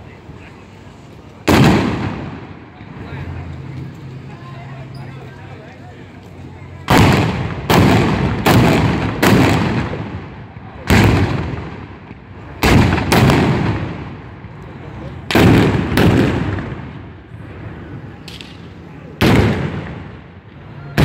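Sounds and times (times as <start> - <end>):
gunshots with long echo: 1.5 - 2.6, 6.9 - 12.0, 12.6 - 14.3, 15.3 - 17.1, 19.2 - 20.3.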